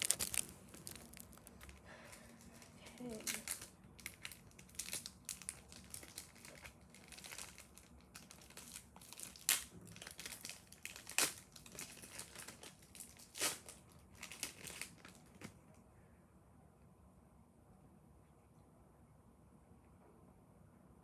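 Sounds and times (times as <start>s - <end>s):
foil wrapper crinkling: 0.0s - 15.6s.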